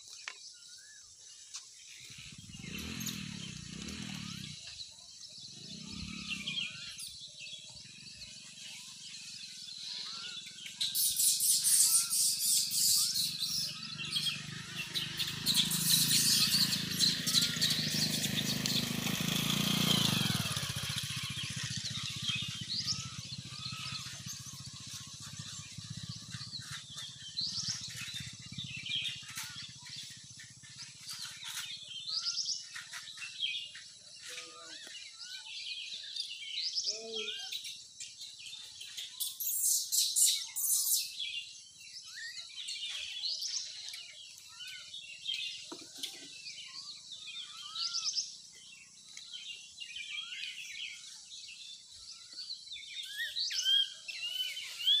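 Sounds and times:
birds chirping: 0.0 - 55.0.

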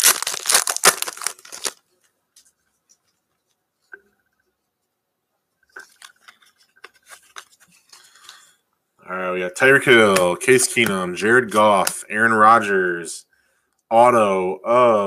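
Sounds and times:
cards being handled: 0.0 - 1.8, 5.8 - 8.4, 9.8 - 12.1
wrapper tearing and crinkling: 0.0 - 1.8.

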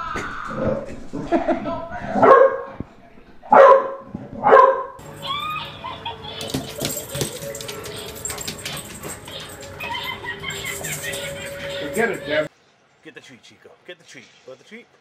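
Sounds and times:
bulldog barking: 2.2 - 2.8, 3.5 - 5.0.

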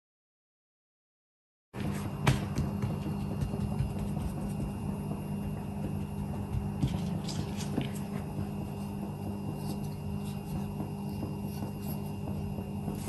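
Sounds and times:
hands patting dough: 1.8 - 13.0
steady low hum: 1.8 - 13.0.

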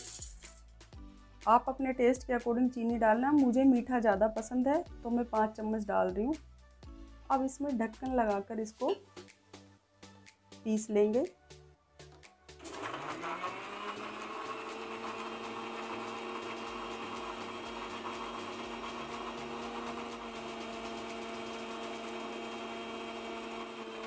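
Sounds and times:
mixer grinder motor running: 12.6 - 24.0.

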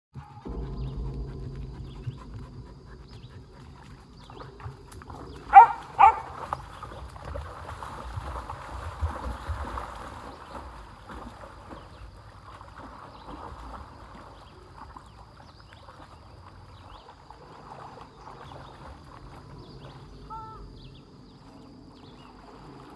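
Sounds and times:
pony wading through water: 0.4 - 22.9
dog barks: 5.5 - 6.4.

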